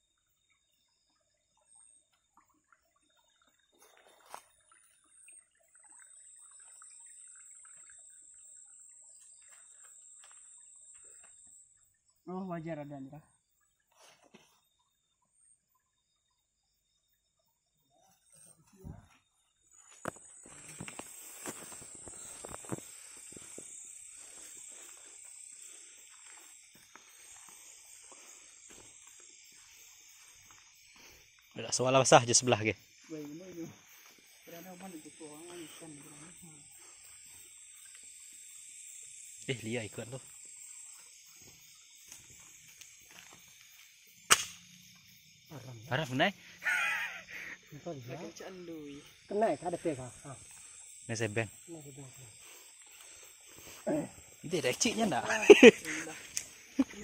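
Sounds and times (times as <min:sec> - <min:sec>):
high-pitched insect call: 0:00.0 - 0:57.0
rustling through low plants: 0:19.7 - 0:31.4
footsteps on a dirt path: 0:19.8 - 0:31.4.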